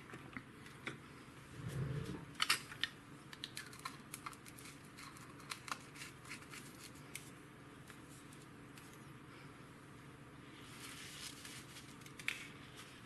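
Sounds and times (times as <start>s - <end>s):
low murmur: 1.4s - 2.4s.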